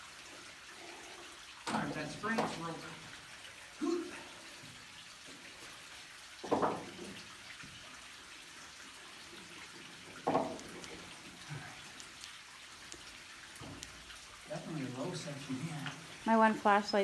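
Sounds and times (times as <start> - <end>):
faint steady hiss: 0.0 - 17.0
knocks on wooden ladder rungs: 6.4 - 7.2, 10.2 - 10.7.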